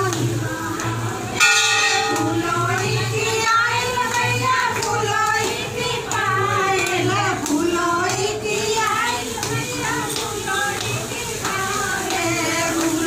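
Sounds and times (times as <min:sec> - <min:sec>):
women singing folk song: 0:00.0 - 0:13.0
brass bell ringing: 0:01.4 - 0:02.4.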